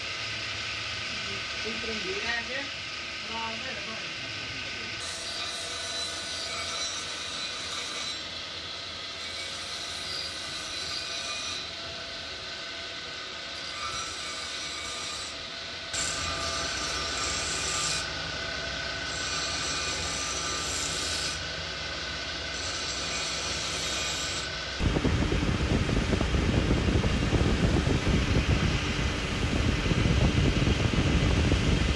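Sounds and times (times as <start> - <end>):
metal grinding on wheel: 13.6 - 18.2, 19.0 - 21.5, 22.5 - 24.6
electric motor hum: 15.3 - 31.9.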